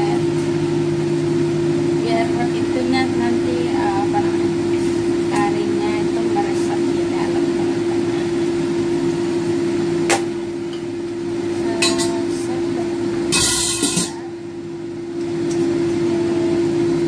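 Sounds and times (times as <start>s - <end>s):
fan-like hum: 0.0s - 17.0s
kitchen handling sounds: 13.3s - 14.2s.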